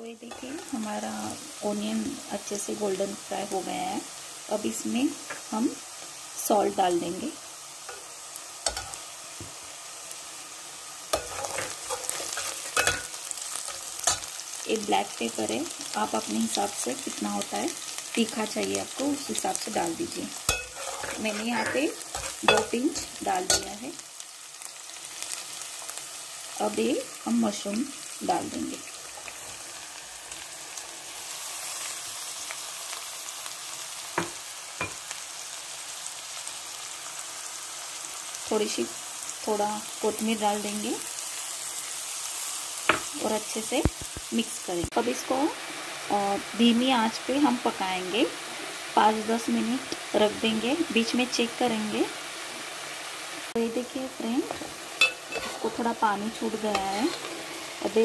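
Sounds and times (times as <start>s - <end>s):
food sizzling in oil: 0.0s - 58.0s
spatula scraping metal pan: 11.2s - 14.3s, 20.5s - 23.7s, 54.5s - 55.9s, 56.7s - 57.7s.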